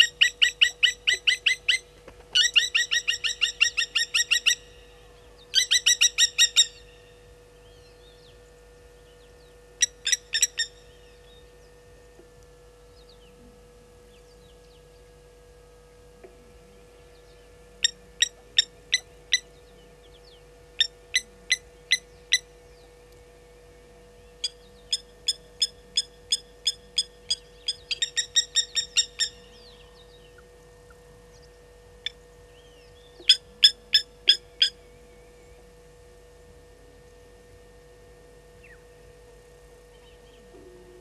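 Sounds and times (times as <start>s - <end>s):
lapwing metallic alarm calls: 0.0s - 4.9s, 5.5s - 7.1s, 9.8s - 11.2s, 17.8s - 22.5s, 24.4s - 30.5s, 33.0s - 34.8s.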